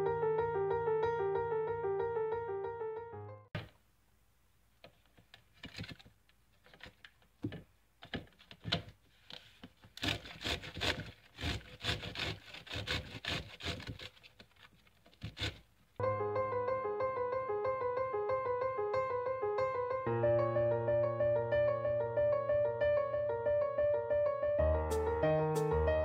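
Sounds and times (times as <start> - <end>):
grater rasping strokes: 10.0 - 14.5, 15.2 - 15.7.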